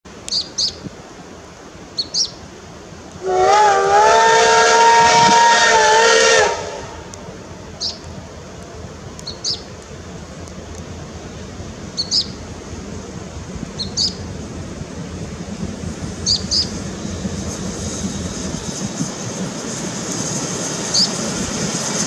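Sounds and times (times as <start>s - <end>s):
steam locomotive whistle: 3.2s - 7.2s.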